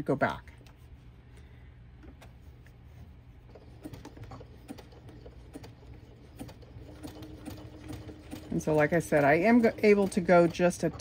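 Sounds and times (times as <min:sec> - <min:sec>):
faint steady hum: 0:00.0 - 0:10.2
sewing machine whirring: 0:03.4 - 0:11.0
sewing machine clicking: 0:03.5 - 0:11.0.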